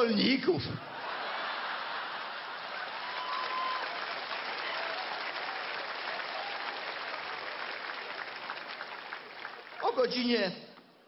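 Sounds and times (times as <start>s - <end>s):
audience laughter: 0.9s - 2.9s
audience applauding: 0.9s - 11.0s.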